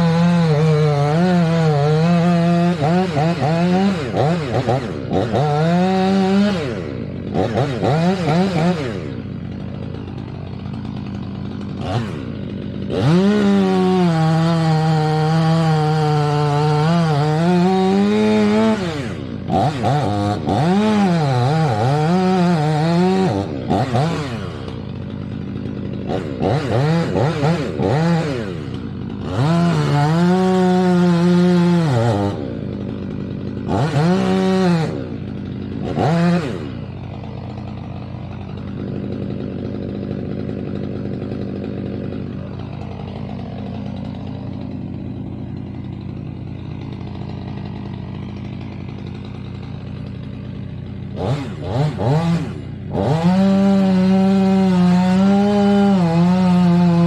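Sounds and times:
chainsaw cutting and revving: 0:00.0 - 0:57.0.

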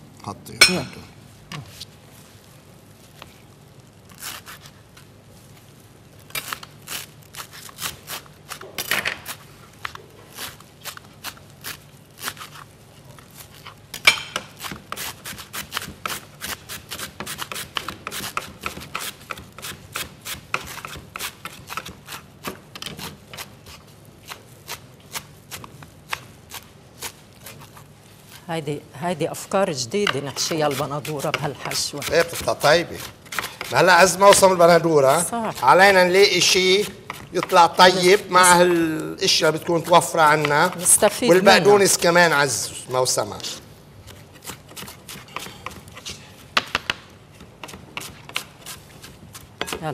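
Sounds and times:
knife chopping on cutting board: 0:14.0 - 0:27.6, 0:30.0 - 0:34.6, 0:36.6 - 0:38.6, 0:44.1 - 0:49.8.

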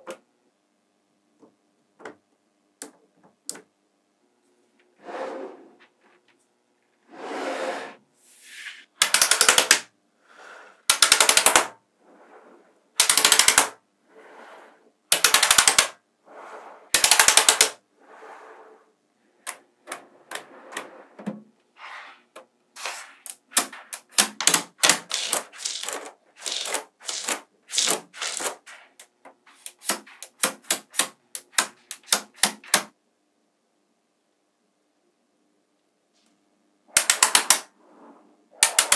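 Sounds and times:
magnetic balls clacking: 0:23.3 - 0:32.8.

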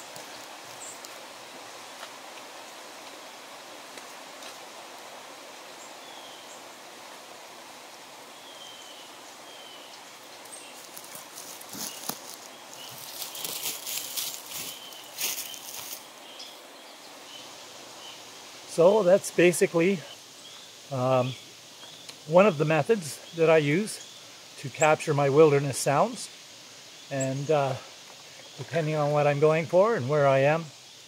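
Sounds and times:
leaves rustling: 0:00.0 - 0:31.0
footsteps crunching dry leaves: 0:10.4 - 0:16.1.

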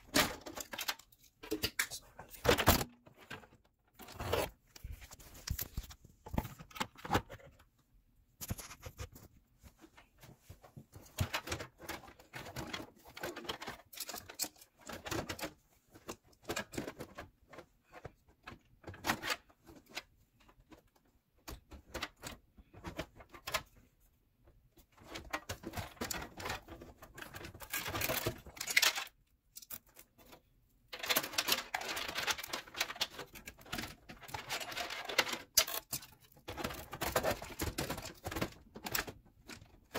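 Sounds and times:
plastic and metal parts knocking: 0:24.8 - 0:39.9.

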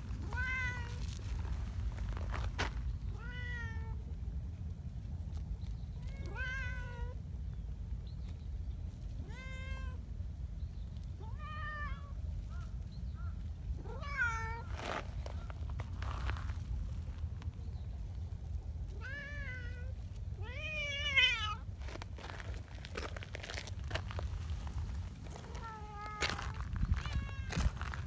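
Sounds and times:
steady low rumble: 0:00.0 - 0:28.0
cat meowing: 0:00.2 - 0:01.0, 0:03.1 - 0:04.0, 0:06.0 - 0:07.2, 0:09.2 - 0:10.0, 0:13.8 - 0:14.7, 0:18.9 - 0:21.6, 0:25.3 - 0:27.7.

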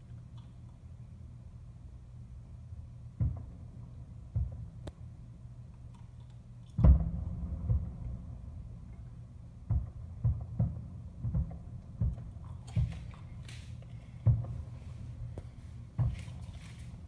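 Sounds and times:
distant fireworks booming: 0:03.1 - 0:05.2, 0:06.8 - 0:16.5.

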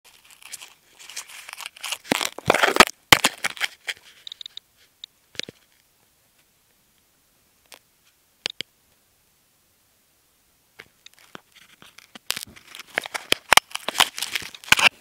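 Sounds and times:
plastic sheet rustling on microphone: 0:11.2 - 0:15.0.

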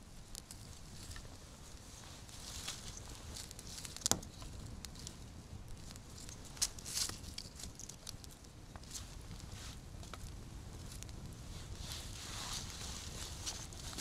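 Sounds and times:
dry sticks knocking and clicking: 0:03.8 - 0:04.5.

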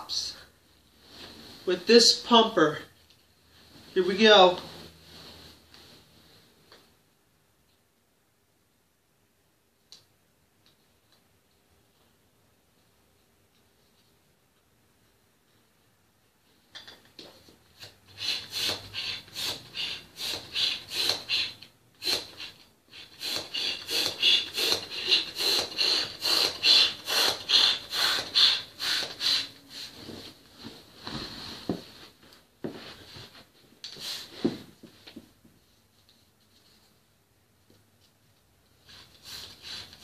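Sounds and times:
balloon pump hissing: 0:17.8 - 0:30.0, 0:38.9 - 0:40.0.

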